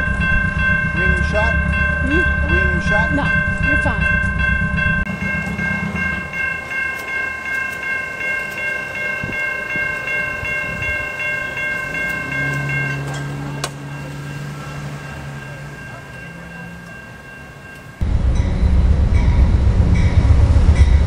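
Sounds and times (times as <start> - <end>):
railroad crossing bells ringing: 0.0 - 21.0
low steady drone: 18.0 - 21.0.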